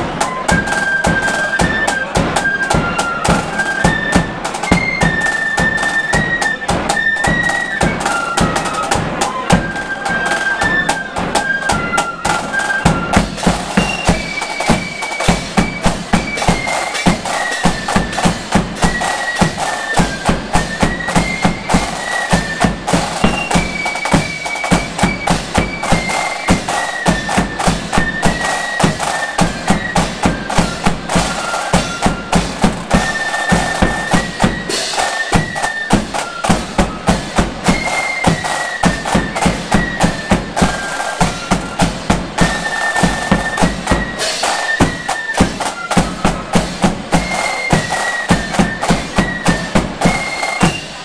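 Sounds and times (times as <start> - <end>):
flute melody: 0.0 - 51.0
side drums: 0.0 - 51.0
crash cymbals: 34.6 - 35.5.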